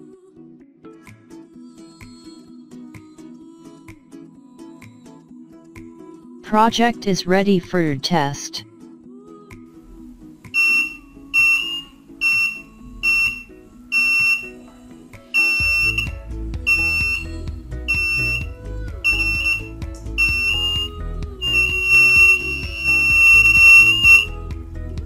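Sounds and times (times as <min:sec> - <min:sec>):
background music: 0:00.0 - 0:25.0
alarm buzzer beeping: 0:10.6 - 0:14.6, 0:15.4 - 0:18.5, 0:19.1 - 0:24.3.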